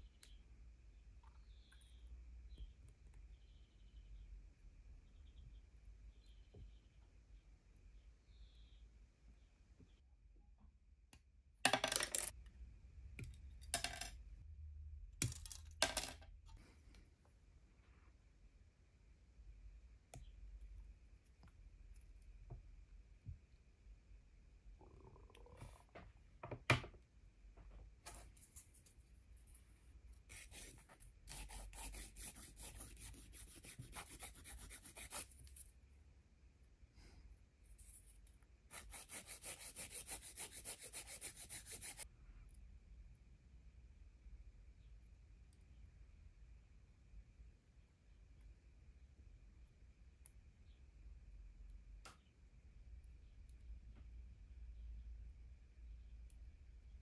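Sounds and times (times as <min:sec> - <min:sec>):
file scratching plastic: 0:30.3 - 0:35.6, 0:38.7 - 0:42.0.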